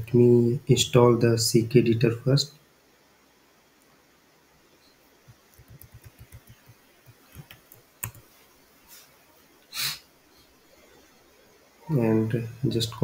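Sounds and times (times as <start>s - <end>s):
keyboard typing: 5.3s - 8.3s.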